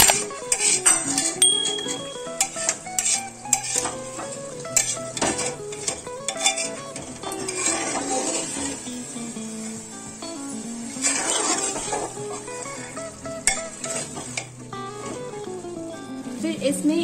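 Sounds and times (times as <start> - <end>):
light sizzle: 0.0 - 17.0
metal ladle scraping a pot: 0.1 - 9.1, 11.0 - 15.3.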